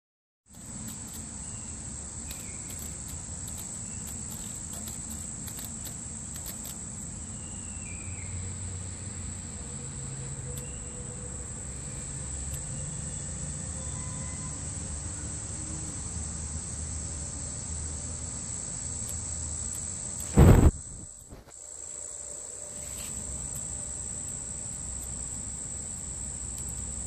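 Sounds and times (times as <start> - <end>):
high-pitched insect song: 0.5 - 27.0.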